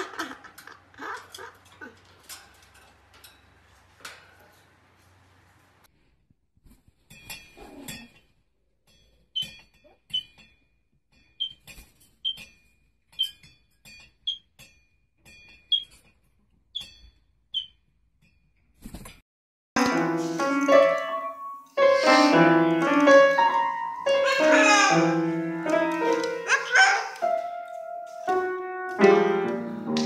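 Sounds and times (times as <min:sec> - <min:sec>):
soft rattles: 0:00.5 - 0:05.7.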